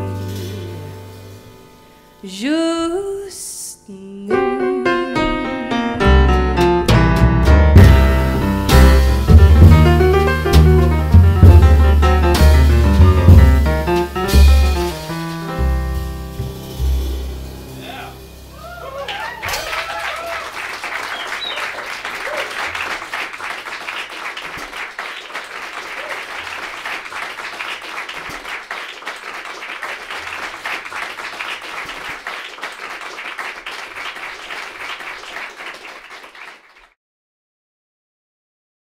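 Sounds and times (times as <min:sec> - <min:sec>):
audience applauding: 0:18.6 - 0:37.0.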